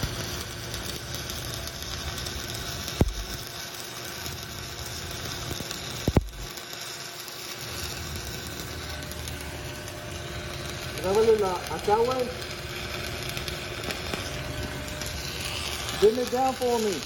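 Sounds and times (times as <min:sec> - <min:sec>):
sharp welding pops: 0:00.0 - 0:17.0
welding arc hissing: 0:00.0 - 0:17.0.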